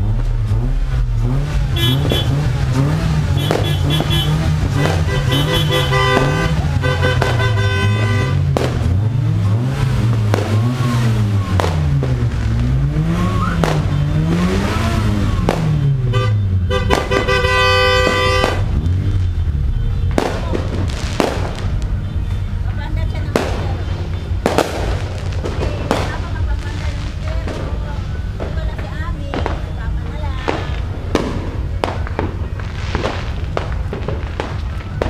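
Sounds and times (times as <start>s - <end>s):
sharp bangs: 0.0s - 35.0s
car horns honking: 1.6s - 9.7s, 13.0s - 28.5s.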